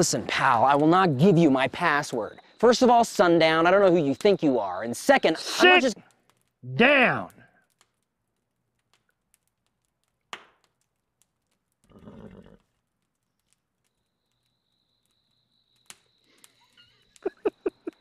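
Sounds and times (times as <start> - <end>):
horse snorting: 11.9 - 12.6.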